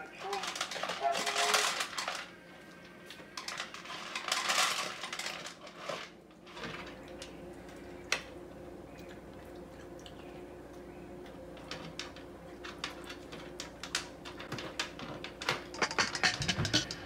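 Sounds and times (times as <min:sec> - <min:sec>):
kibble rattling against tray: 0:00.0 - 0:02.3, 0:03.4 - 0:07.3, 0:11.6 - 0:17.0.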